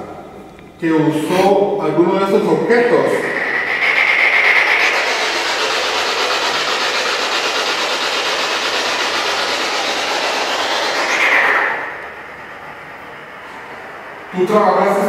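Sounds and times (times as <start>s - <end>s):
radio static sweeping: 2.3s - 14.3s.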